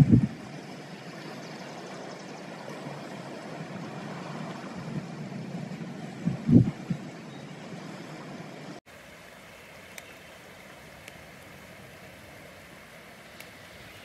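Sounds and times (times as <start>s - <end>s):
wind buffeting microphone: 0.0s - 8.8s
wind: 0.0s - 14.0s.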